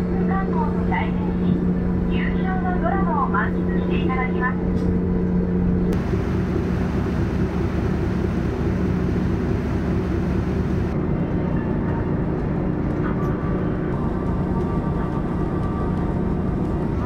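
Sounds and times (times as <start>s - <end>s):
ship engines droning: 0.0s - 12.8s.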